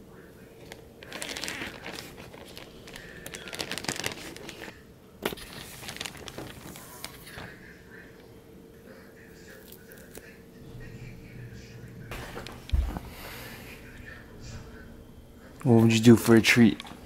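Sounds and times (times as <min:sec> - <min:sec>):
hand rustling inside bag: 0:00.6 - 0:07.5
plastic bag crinkling: 0:00.6 - 0:07.6.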